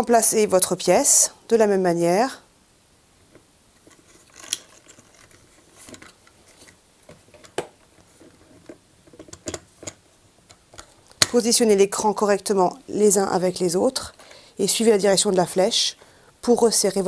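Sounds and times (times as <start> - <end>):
plastic scraping and rubbing: 3.8 - 10.0.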